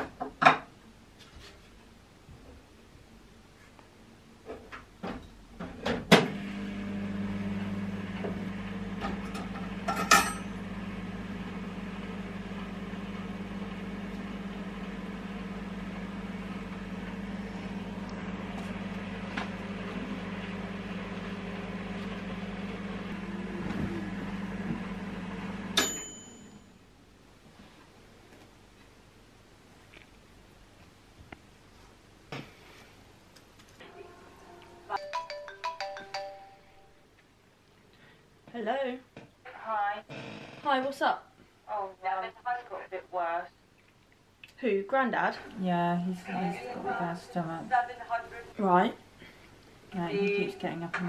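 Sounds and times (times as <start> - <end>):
microwave humming: 6.0 - 26.9, 46.1 - 51.0
microwave timer ding: 25.7 - 26.7.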